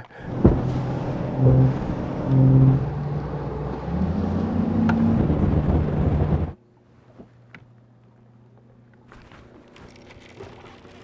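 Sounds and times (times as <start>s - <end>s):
outboard motor running: 0.0s - 6.6s.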